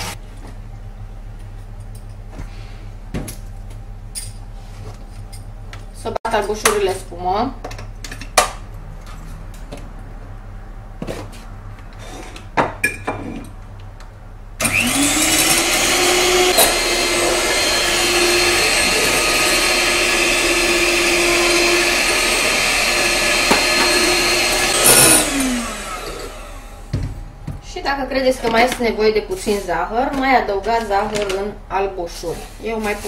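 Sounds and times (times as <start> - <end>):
electric hand mixer whirring: 14.6 - 27.0.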